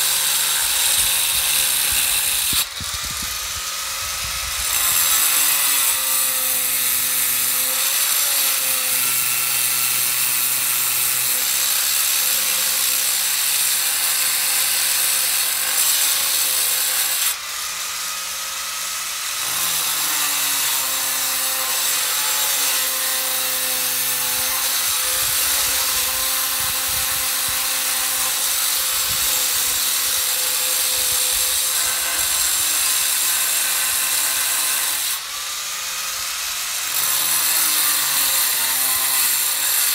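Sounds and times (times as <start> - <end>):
angle grinder cutting stone: 0.0 - 39.9.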